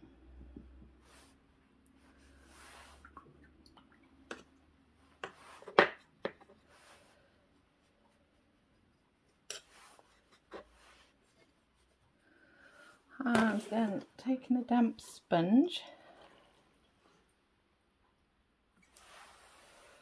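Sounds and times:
paintbrush scratchy strokes: 6.6 - 12.1, 18.9 - 20.0.

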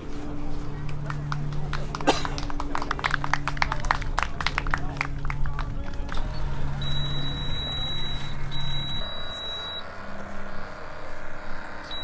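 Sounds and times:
high-pitched electronic beeps: 6.7 - 12.0.

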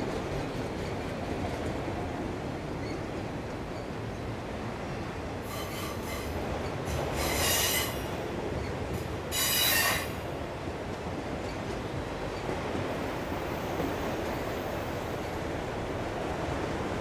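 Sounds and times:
train wheels rumbling on rail: 0.0 - 17.0
high-pitched wheel squeal: 7.2 - 8.0, 9.3 - 10.2.

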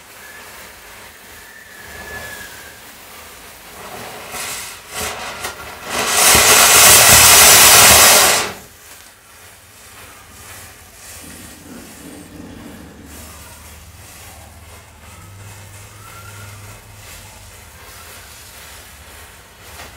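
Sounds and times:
loud hiss: 0.0 - 19.9
matches burning and fizzing: 0.0 - 19.9.

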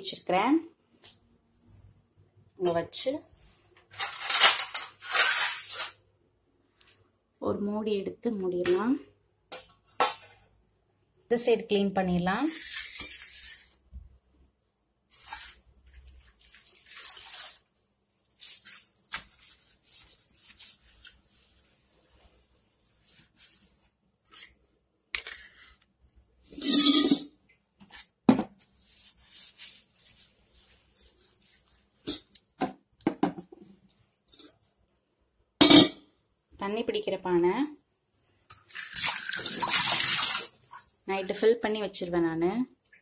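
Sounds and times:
wet cloth wiping countertop: 15.1 - 25.8, 27.8 - 32.3
knocks and clatters of objects: 32.6 - 33.8.

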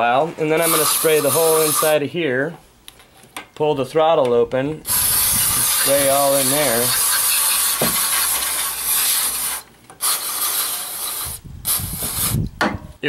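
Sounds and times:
aerosol can spraying hiss: 0.6 - 1.9, 4.9 - 12.4.

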